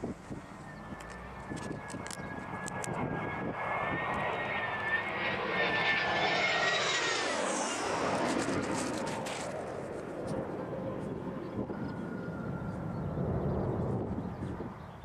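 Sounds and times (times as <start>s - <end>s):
jet engine with high whine: 0.0s - 15.0s
jet whoosh falling in pitch: 3.0s - 9.6s.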